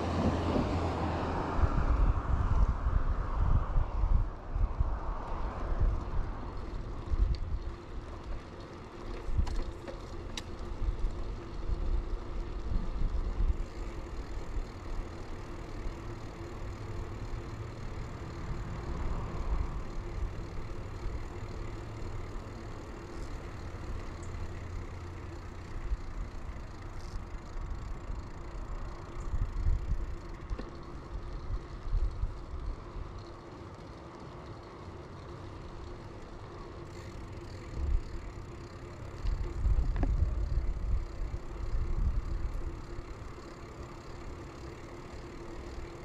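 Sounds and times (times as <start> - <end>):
wind rumbling on microphone: 0.0 - 9.8, 39.2 - 43.2
bicycle tyres rolling on pavement: 0.0 - 46.0.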